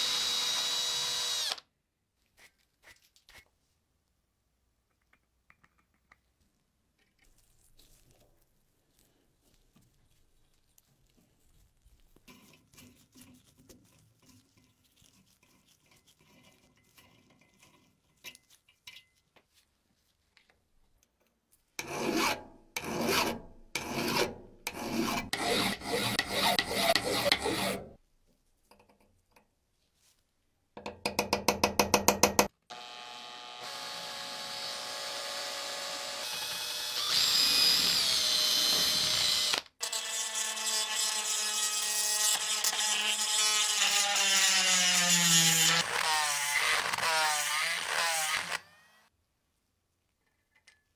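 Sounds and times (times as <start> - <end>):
power tool whining: 0.0 - 1.6, 32.7 - 39.7, 42.3 - 49.1.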